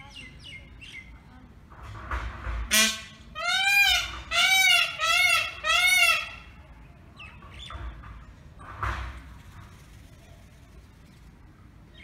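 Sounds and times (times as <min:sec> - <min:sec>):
peafowl calling: 0:02.7 - 0:06.5.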